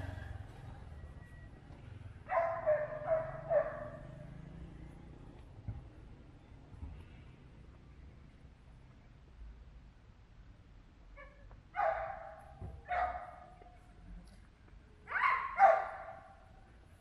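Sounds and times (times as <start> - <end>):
dog barking: 2.2 - 4.3, 11.2 - 13.7, 15.1 - 16.4.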